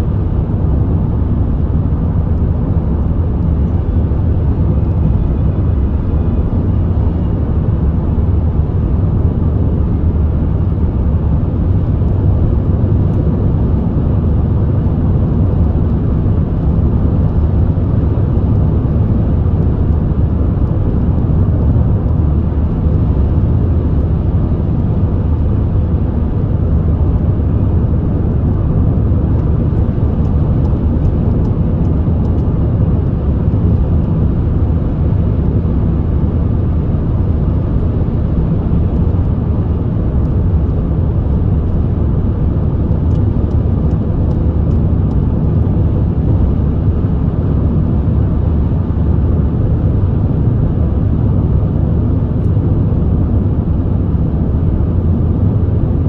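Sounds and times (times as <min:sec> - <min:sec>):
car driving interior rumble: 0:00.0 - 0:56.0
tyre and road noise: 0:00.0 - 0:56.0.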